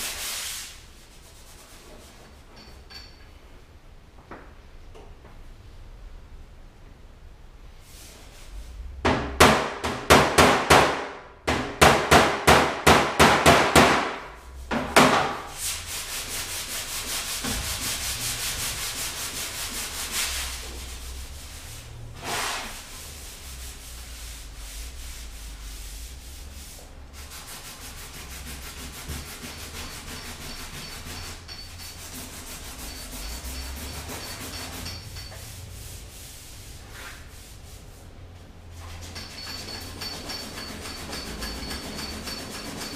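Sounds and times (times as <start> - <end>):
hand block sanding: 0.0 - 2.3, 12.1 - 38.0, 38.9 - 42.9.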